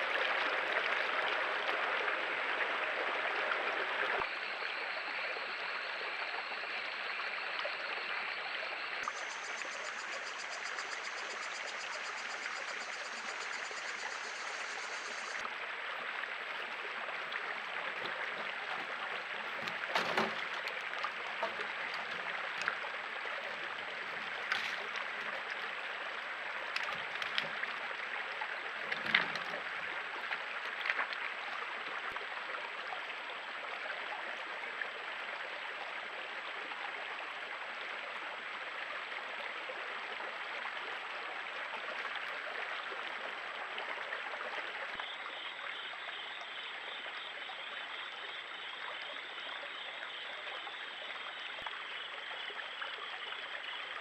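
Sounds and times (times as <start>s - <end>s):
creek water trickling over rocks: 0.0s - 54.0s
small splashes: 13.0s - 32.2s.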